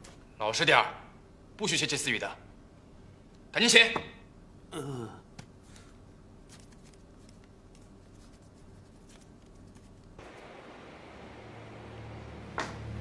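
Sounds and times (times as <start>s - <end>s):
low steady hiss: 0.0s - 13.0s
pens scratching on paper: 6.5s - 10.1s.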